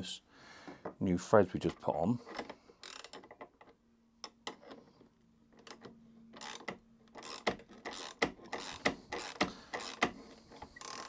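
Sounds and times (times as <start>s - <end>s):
ratchet spanner clicking: 2.8s - 3.2s, 6.4s - 10.1s, 10.7s - 11.0s.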